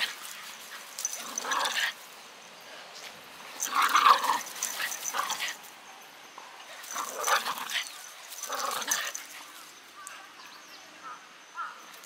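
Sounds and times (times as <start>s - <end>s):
dogs growling and yipping: 0.0s - 2.0s, 3.4s - 5.7s, 6.7s - 9.6s.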